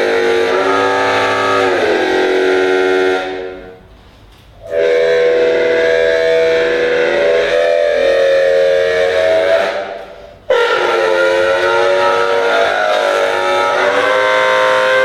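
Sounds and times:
trombone playing long notes: 0:00.0 - 0:03.9, 0:04.6 - 0:15.0.

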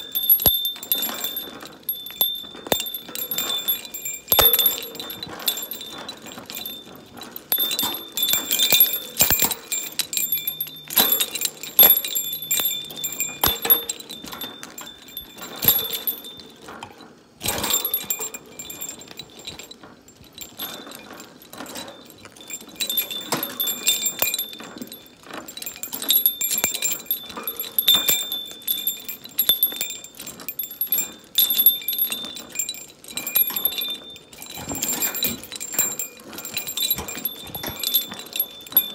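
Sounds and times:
clicks and knocks: 0:00.0 - 0:19.8
bell and chain jingling: 0:00.0 - 0:38.9.

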